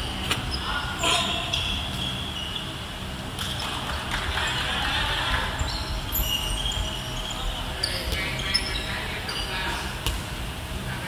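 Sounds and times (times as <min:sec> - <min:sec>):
sneaker squeaks: 0:00.0 - 0:02.9, 0:05.6 - 0:10.3.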